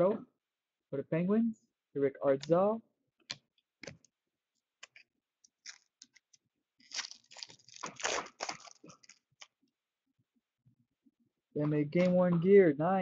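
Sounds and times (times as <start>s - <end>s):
foil wrapper crinkling: 4.8s - 9.6s.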